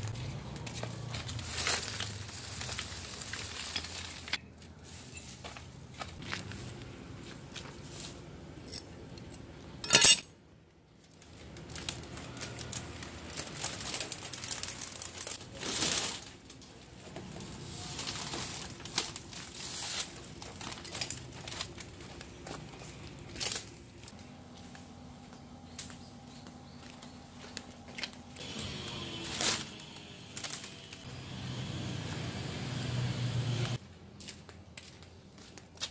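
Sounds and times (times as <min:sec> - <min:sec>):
dry grass and leaves rustling: 0:00.0 - 0:08.9, 0:10.9 - 0:32.3.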